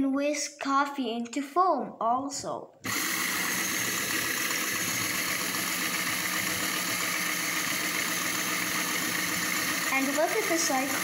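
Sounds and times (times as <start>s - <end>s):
electric motor running: 2.8s - 11.0s
whisk spinning in water: 2.9s - 11.0s.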